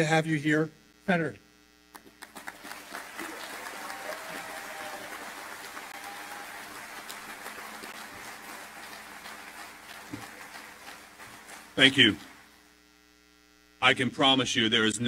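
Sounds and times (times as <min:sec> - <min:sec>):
audience applauding: 0:02.0 - 0:12.5.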